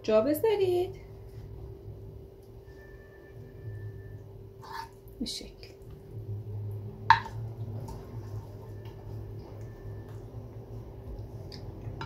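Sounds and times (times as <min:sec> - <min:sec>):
steady low hum: 0:00.0 - 0:12.0
spatula scraping frying pan: 0:04.6 - 0:05.0.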